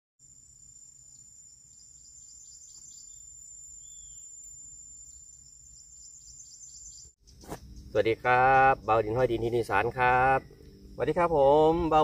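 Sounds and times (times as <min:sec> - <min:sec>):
crickets droning: 0:00.2 - 0:12.0.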